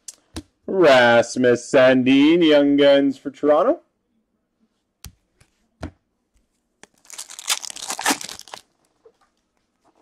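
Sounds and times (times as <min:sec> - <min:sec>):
wrapper tearing open: 0:06.8 - 0:08.7.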